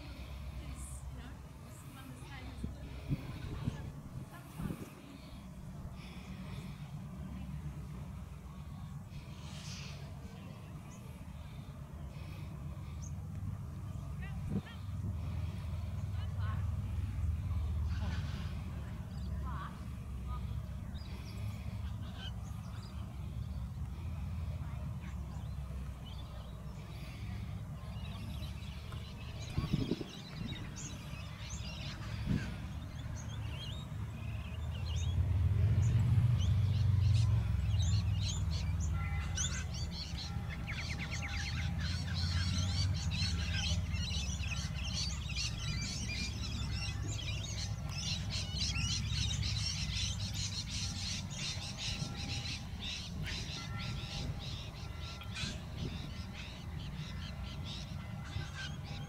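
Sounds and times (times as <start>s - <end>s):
wind rumble on microphone: 2.6s - 5.2s, 29.3s - 31.0s
small birds chirping: 8.5s - 59.0s.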